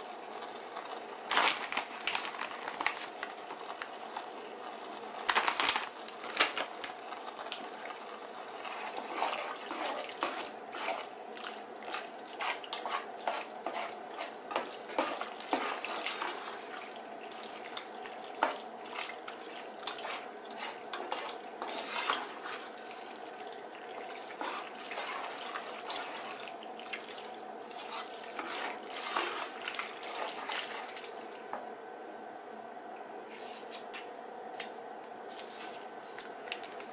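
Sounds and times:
steady hum: 0:00.0 - 0:36.9
spoon stirring pasta in pot: 0:08.6 - 0:31.6.

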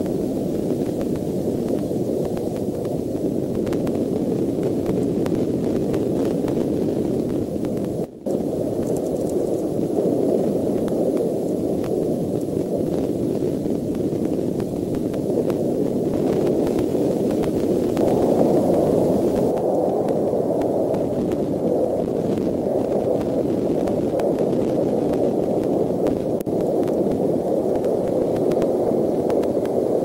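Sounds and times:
faint ticks: 0:08.8 - 0:09.8, 0:10.4 - 0:12.7, 0:25.1 - 0:29.8.

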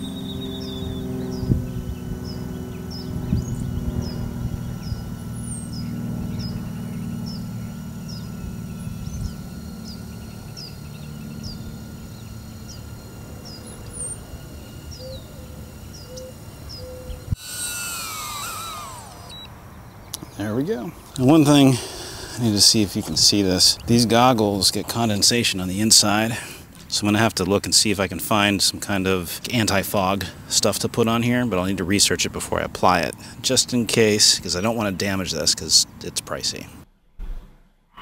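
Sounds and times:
bird chirping: 0:00.0 - 0:22.4
low hum: 0:00.0 - 0:29.7
drone propellers whining: 0:00.0 - 0:36.8.

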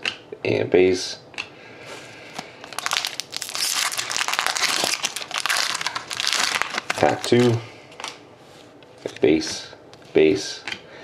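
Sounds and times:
foil wrapper tearing and crinkling: 0:02.6 - 0:08.2.

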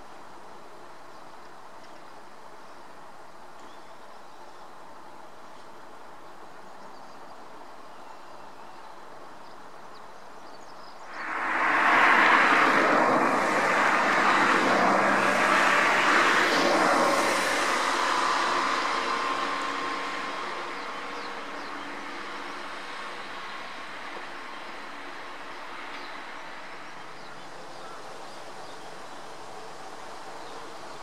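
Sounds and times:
vehicle passing by: 0:11.1 - 0:24.0.

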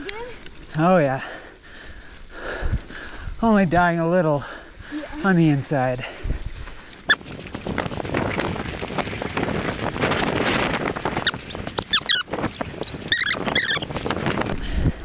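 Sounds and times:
bike tyres on gravel: 0:06.2 - 0:14.6
wind on microphone: 0:06.2 - 0:15.0
short high squeaks: 0:07.1 - 0:07.7, 0:11.2 - 0:14.5.

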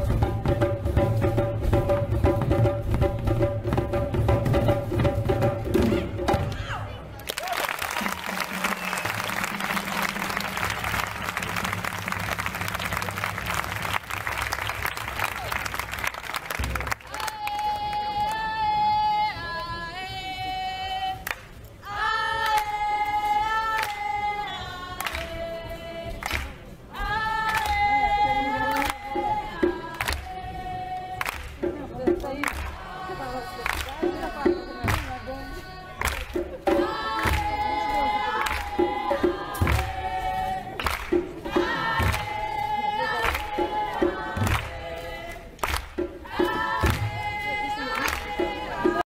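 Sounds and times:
voices chanting in unison: 0:32.6 - 0:49.0.

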